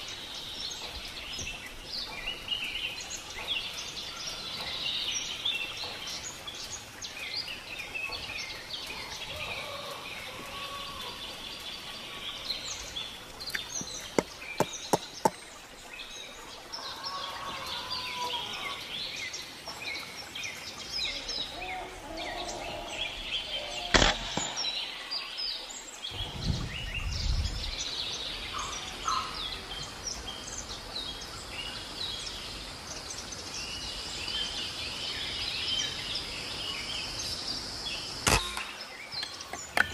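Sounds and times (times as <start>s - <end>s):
birds chirping: 0.0s - 39.9s
air rifle shot: 23.9s - 24.8s
quick sharp clicks: 23.9s - 24.8s.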